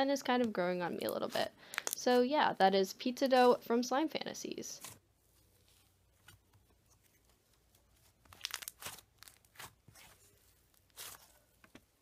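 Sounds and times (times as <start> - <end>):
slime crackling as it is stretched: 5.6 - 11.6.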